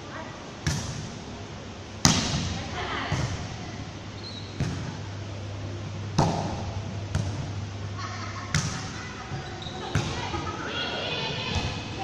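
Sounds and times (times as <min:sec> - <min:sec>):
volleyball hits echoing: 0:02.0 - 0:03.6, 0:04.6 - 0:05.1, 0:06.1 - 0:07.6, 0:08.5 - 0:09.0, 0:09.9 - 0:10.4
low hum: 0:03.4 - 0:09.6.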